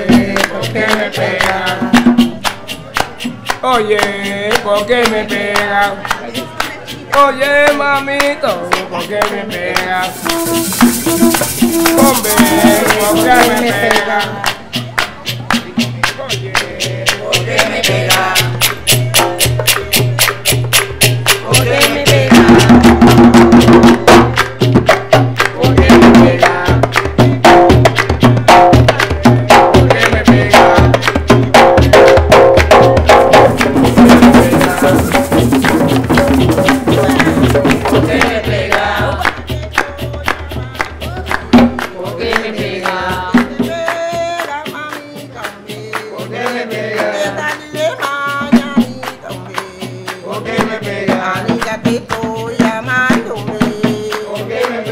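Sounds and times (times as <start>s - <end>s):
hand drums beating: 0.0s - 54.9s
voices: 5.2s - 20.0s
woman singing: 9.0s - 14.6s, 36.6s - 40.9s, 42.0s - 46.3s, 47.0s - 54.9s.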